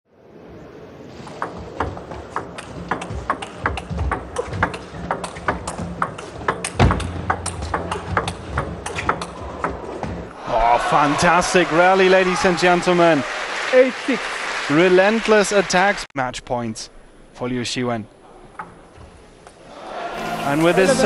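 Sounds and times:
table tennis ball clicking: 1.4 - 9.8.

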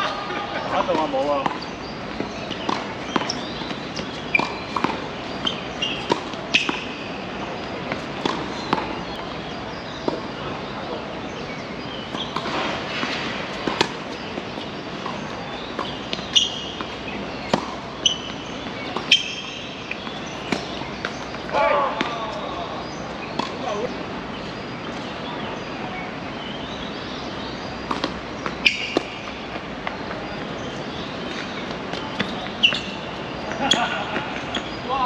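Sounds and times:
background murmur: 0.0 - 27.1
balls bouncing on court: 0.6 - 9.3, 12.1 - 24.0, 27.9 - 35.0
tennis balls struck by rackets: 0.6 - 24.0, 27.2 - 34.9.

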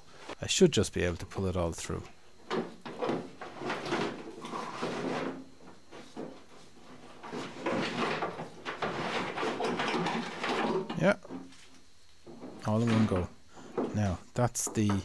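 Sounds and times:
wires scraping against sheet metal: 2.5 - 11.6.

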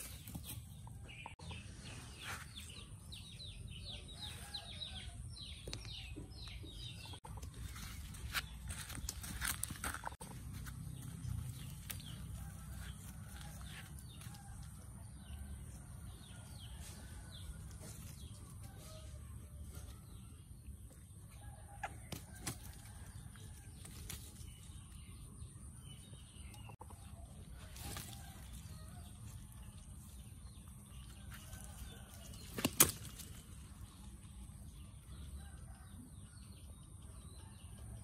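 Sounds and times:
leaves and branches rustling: 27.5 - 30.3, 31.1 - 34.1.

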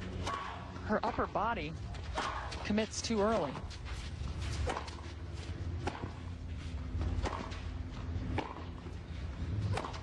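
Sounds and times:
tennis ball bouncing: 4.4 - 5.1, 5.7 - 8.9, 9.6 - 10.0
racket hitting tennis ball: 4.6 - 5.0, 5.8 - 6.3, 7.0 - 8.8, 9.6 - 10.0.

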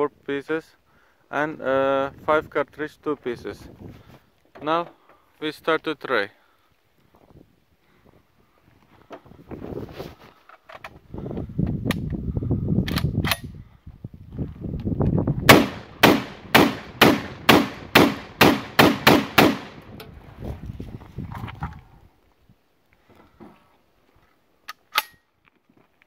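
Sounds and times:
gun handling clicks and clacks: 10.4 - 11.0, 12.8 - 13.5, 24.6 - 25.6
shotgun shots: 15.5 - 20.0.

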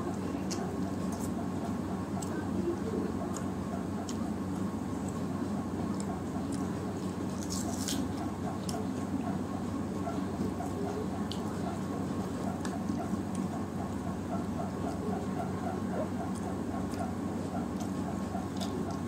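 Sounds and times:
chewing: 0.0 - 19.0
steady low hum: 0.0 - 19.0
small crackly clicks: 5.8 - 9.1, 11.2 - 11.9, 17.7 - 19.0.

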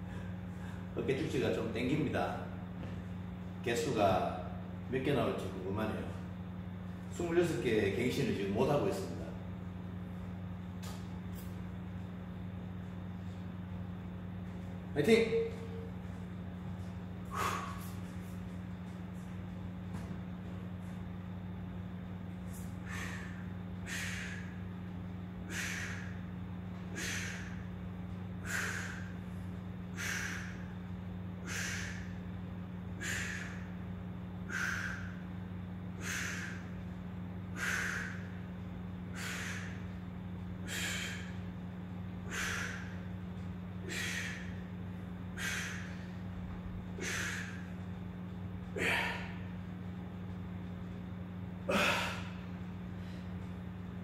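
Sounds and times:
man breathing hard: 0.0 - 1.0, 16.8 - 18.6, 22.5 - 24.8, 25.4 - 48.0, 48.7 - 49.5, 51.6 - 53.5
steady low hum: 0.0 - 54.0.

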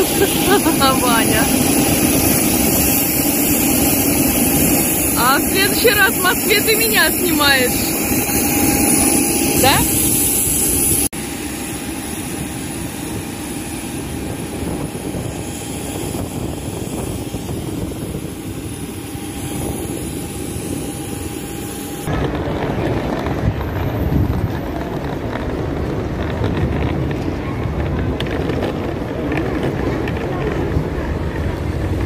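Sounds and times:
engine rumble: 0.0 - 32.0.

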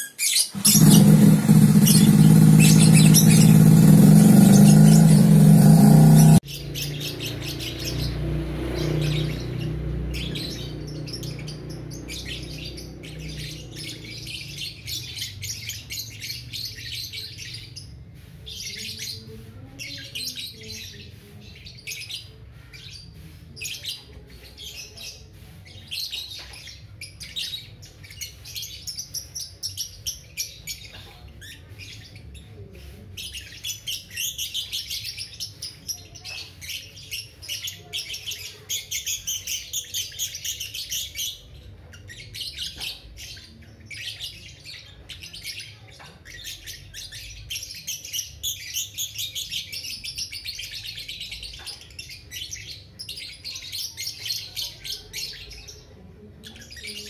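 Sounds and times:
bird chirping: 0.0 - 57.0
loud abrupt sound: 0.5 - 6.4.

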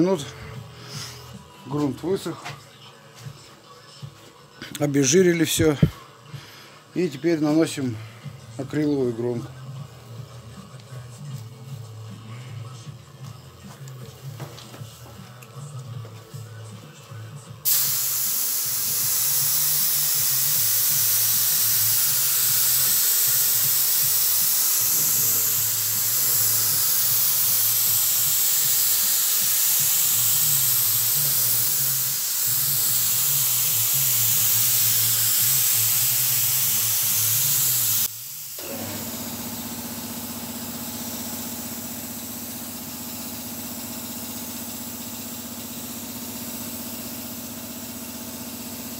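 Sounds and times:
spray gun air hiss: 17.6 - 48.9.

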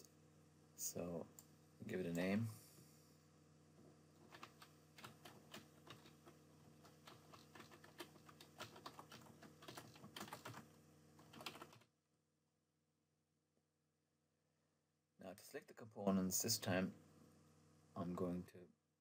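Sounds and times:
keyboard typing clicks: 6.8 - 10.6.

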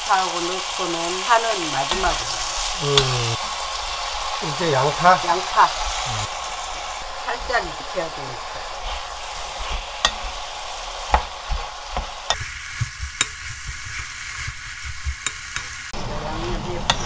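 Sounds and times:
vegetables sizzling in oil: 0.0 - 17.0
wooden spoon scraping a pan: 8.8 - 15.9, 16.8 - 17.0.

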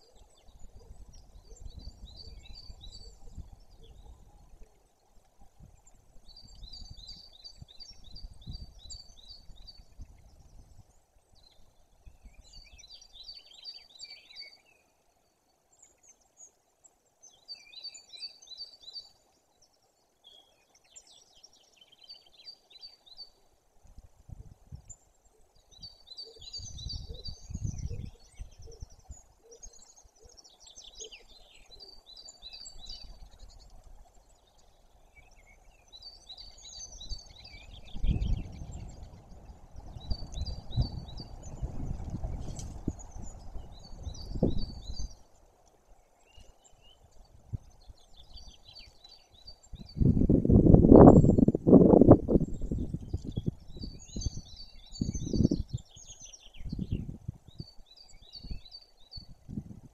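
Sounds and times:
wind rumble on microphone: 0.0 - 13.8, 23.8 - 25.0, 25.6 - 34.3, 35.0 - 45.4, 46.2 - 59.9
songbirds singing trills: 0.0 - 59.9.

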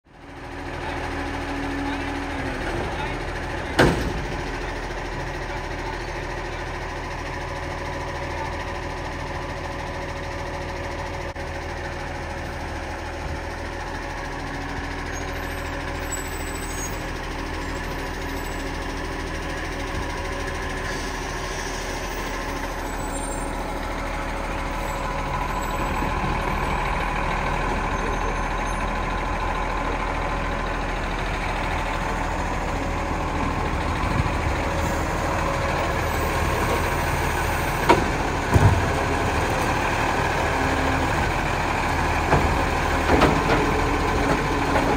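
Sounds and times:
garbage truck diesel engine: 0.0 - 44.9
mechanical arm knocking on bin: 37.8 - 38.9.

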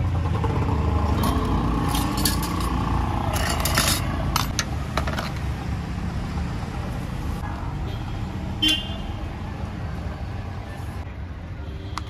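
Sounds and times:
street traffic rumble: 0.0 - 12.0
sharp clinks and scrapes: 1.2 - 5.4.

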